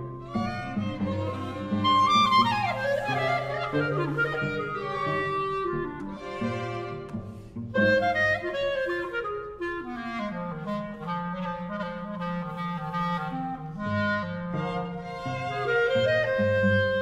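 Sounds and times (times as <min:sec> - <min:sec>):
string orchestra sustained notes: 0:00.0 - 0:08.6
clarinet melody: 0:00.0 - 0:17.0.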